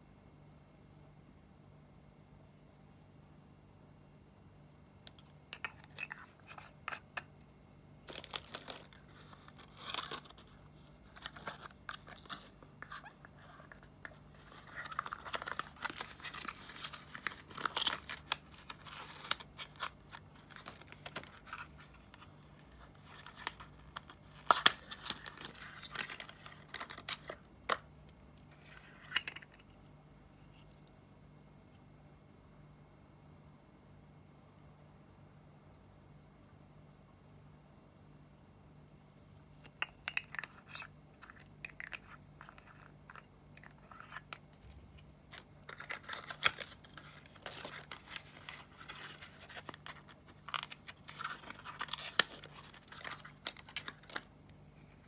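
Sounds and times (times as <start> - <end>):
packaging crinkling and tearing: 8.0 - 27.8, 45.2 - 54.4.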